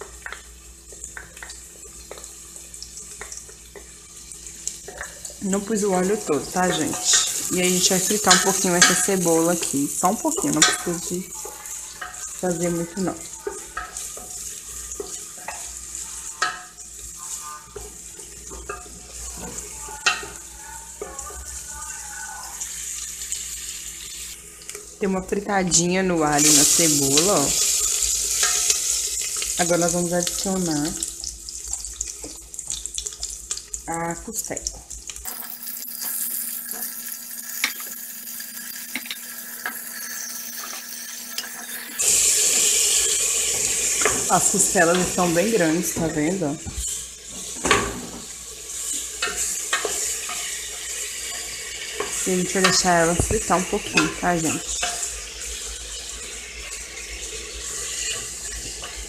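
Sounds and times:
onion sizzling in oil: 0.0 - 59.0
wooden spoon stirring: 10.4 - 22.6.

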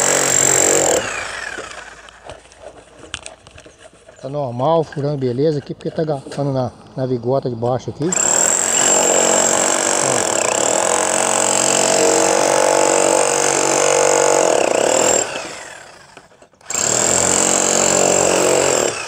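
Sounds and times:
demolition hammer hammering concrete: 0.0 - 1.7, 8.1 - 15.5, 16.6 - 19.0.

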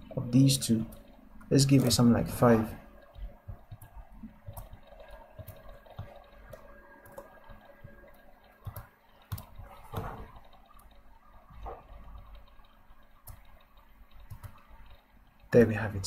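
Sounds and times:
low room noise: 0.0 - 16.0
computer mouse clicks: 0.6 - 15.8.

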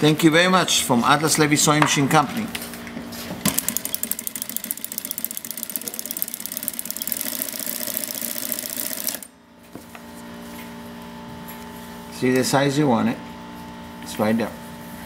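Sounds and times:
sewing machine clatter: 3.5 - 9.3.

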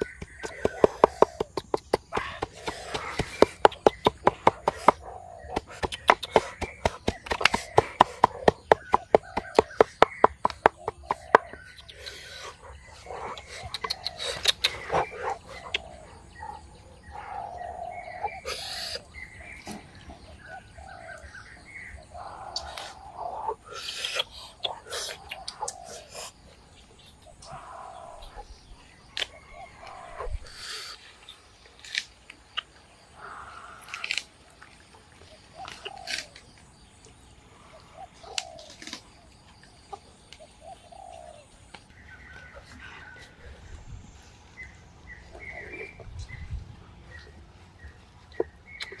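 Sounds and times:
dove cooing: 0.0 - 19.1, 40.6 - 41.5.

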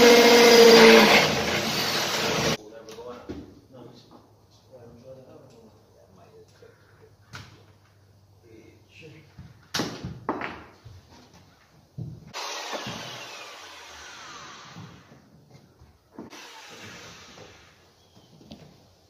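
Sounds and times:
power drill running: 0.0 - 2.6, 12.3 - 15.2, 16.3 - 17.8.

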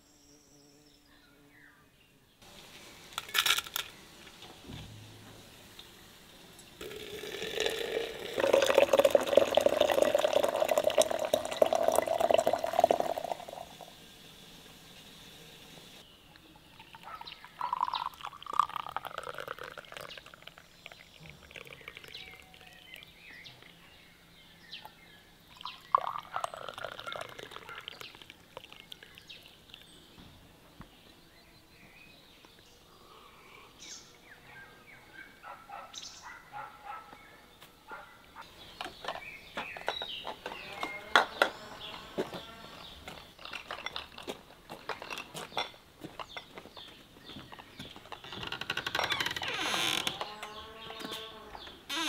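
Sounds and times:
tea pouring into glass cups: 6.7 - 23.9, 24.8 - 30.1
liquid pouring into glass jar: 6.8 - 13.9, 16.6 - 23.8, 25.5 - 29.9.

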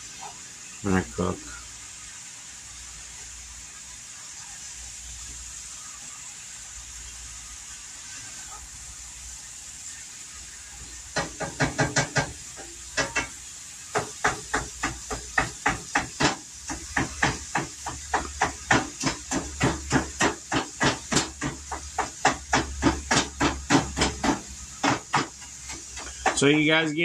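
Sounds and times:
steady hiss of frying: 0.0 - 27.0
utensil knocking against frying pan: 11.1 - 26.5.

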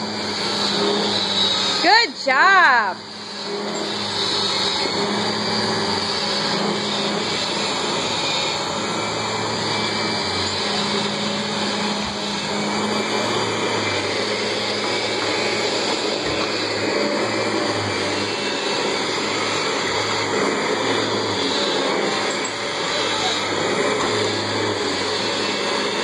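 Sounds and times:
vacuum cleaner running on carpet: 0.0 - 26.0.

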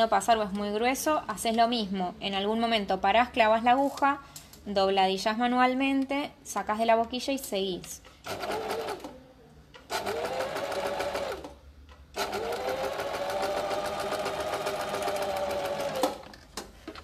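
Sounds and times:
sewing machine stitching: 8.3 - 9.1, 9.9 - 11.6, 12.2 - 16.3.

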